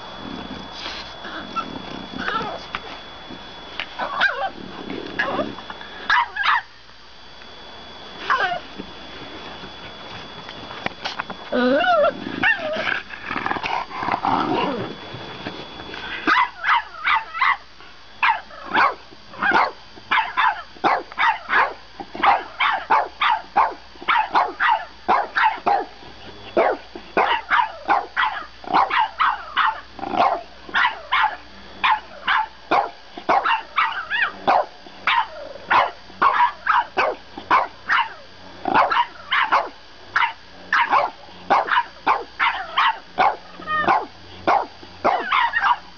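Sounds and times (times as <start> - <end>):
dog grumbling: 0.2 - 2.7, 11.5 - 15.0
dogs barking: 4.0 - 4.6, 6.1 - 6.7, 12.4 - 12.9, 16.2 - 26.0, 26.6 - 45.9.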